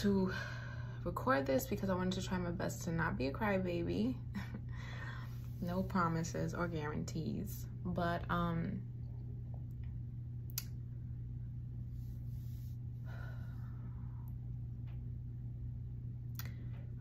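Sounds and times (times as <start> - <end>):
steady low hum: 0.0 - 17.0
soft breathing: 4.7 - 5.9, 11.8 - 14.5.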